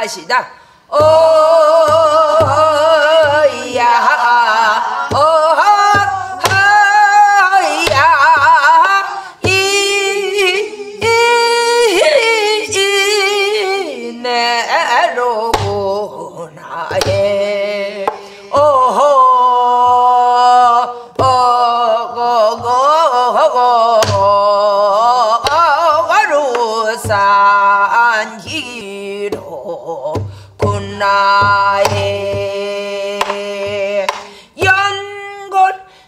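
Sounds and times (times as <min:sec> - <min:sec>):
barrel drum beat: 0:00.9 - 0:13.3, 0:28.4 - 0:35.1.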